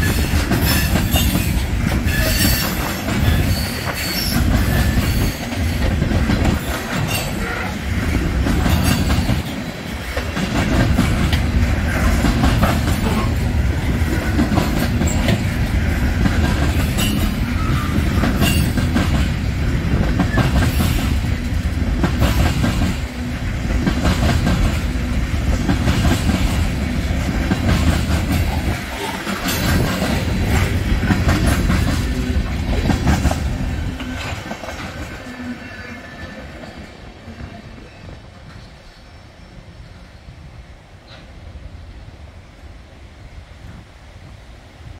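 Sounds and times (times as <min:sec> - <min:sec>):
wheels clickety-clack: 0:00.0 - 0:35.4
train wheels rumbling on rail: 0:00.0 - 0:44.9.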